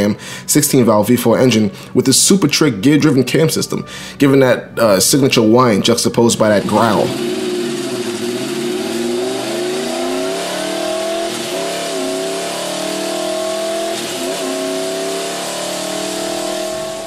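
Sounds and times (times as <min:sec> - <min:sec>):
motorcycle engine revving: 0:06.4 - 0:17.0.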